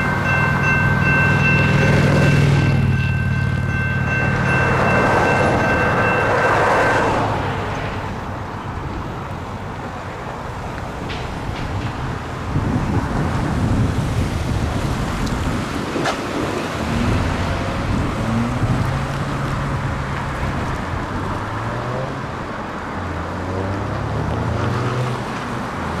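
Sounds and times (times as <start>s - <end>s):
wind buffeting microphone: 0.0s - 22.8s
car engines: 0.0s - 26.0s.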